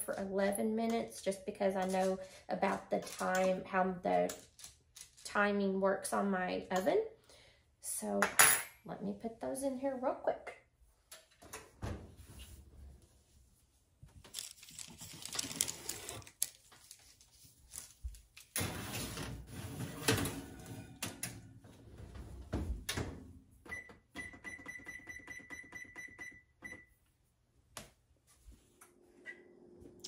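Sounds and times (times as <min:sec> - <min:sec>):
baking sheet sliding into oven: 0:18.6 - 0:21.0.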